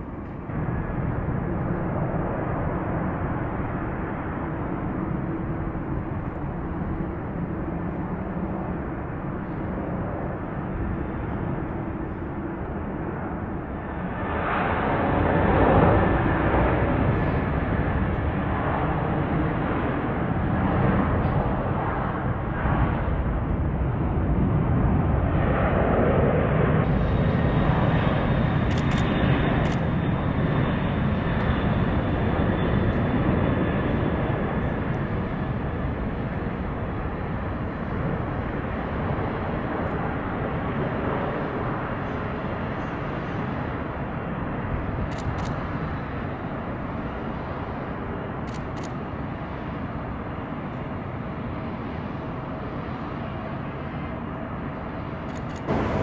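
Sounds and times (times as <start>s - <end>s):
jet engines at takeoff power: 0.0s - 56.0s.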